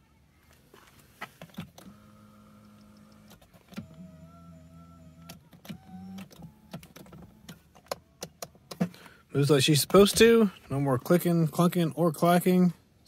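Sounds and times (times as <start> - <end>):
power seat motors running: 1.5 - 7.7.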